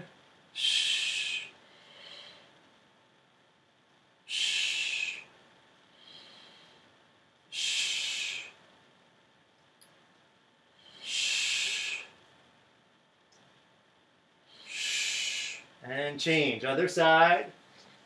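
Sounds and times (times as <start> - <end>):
person exhaling hard: 0.6 - 2.5, 4.3 - 5.3, 7.5 - 8.6, 10.9 - 12.2, 14.6 - 15.7
faint in-breath: 0.6 - 2.7, 4.3 - 8.7, 10.7 - 12.2, 14.4 - 15.8.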